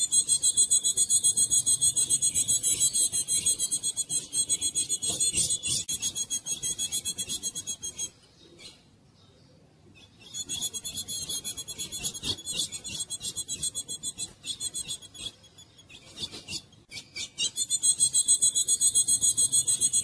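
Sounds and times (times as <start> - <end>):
bird giving rasping call notes: 10.3 - 15.4.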